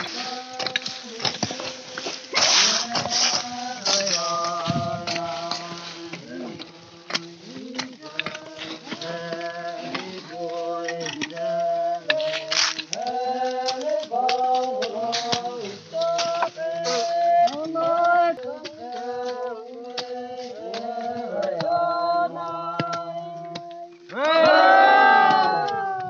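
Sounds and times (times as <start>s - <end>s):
hoes knocking on soil: 0.0s - 26.0s
voices singing a group chant: 0.0s - 26.0s
loud group cry: 24.1s - 26.0s.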